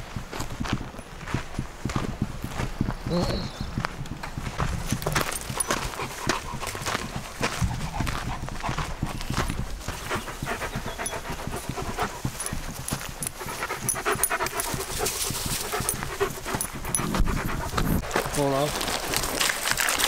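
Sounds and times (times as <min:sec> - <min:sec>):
dog panting: 0:04.4 - 0:18.2.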